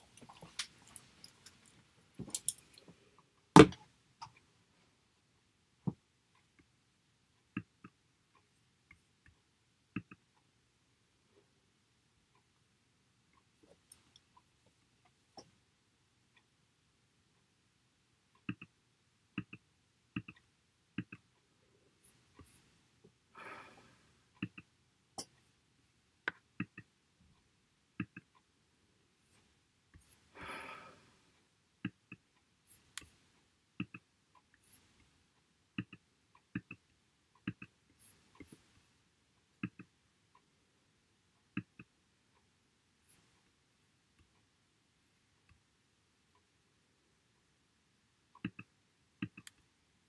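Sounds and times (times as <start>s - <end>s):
sharp irregular clicks: 19.4s - 21.4s, 48.4s - 49.7s
breathy noises: 30.1s - 31.2s.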